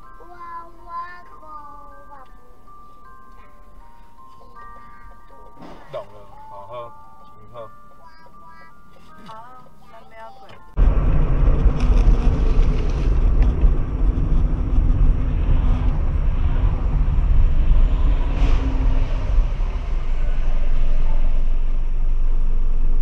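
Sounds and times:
car road and engine rumble: 0:08.8 - 0:23.0.

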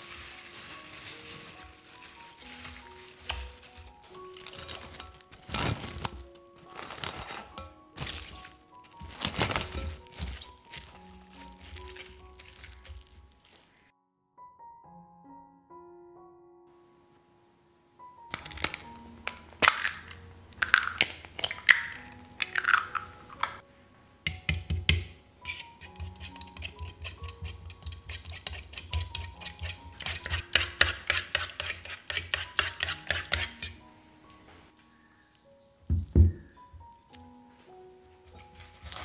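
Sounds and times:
cling film crinkling: 0:00.0 - 0:13.9, 0:18.3 - 0:23.6, 0:38.2 - 0:39.0
background music: 0:00.0 - 0:39.0
eggshells cracking: 0:00.1 - 0:13.9, 0:18.3 - 0:23.6
fork beating eggs on plate: 0:24.3 - 0:33.8.

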